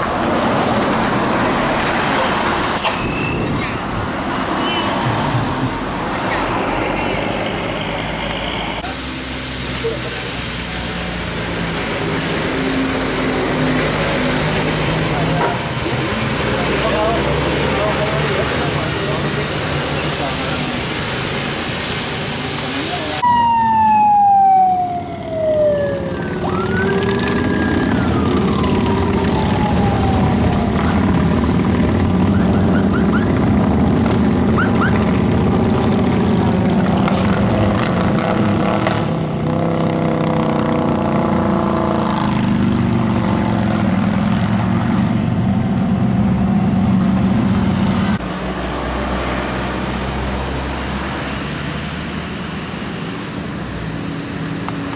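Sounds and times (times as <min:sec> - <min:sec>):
passing traffic: 0:00.0 - 0:54.9
siren sweeping: 0:23.2 - 0:33.5
motorcycles rumbling past: 0:25.2 - 0:45.7.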